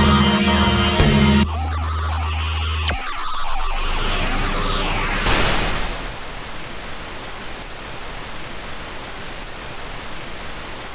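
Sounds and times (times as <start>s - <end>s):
static hiss: 0.0s - 10.9s.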